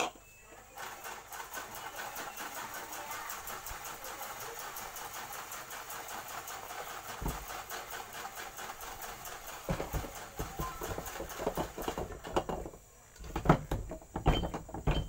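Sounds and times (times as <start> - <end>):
compressor parts rattling: 5.7 - 15.0.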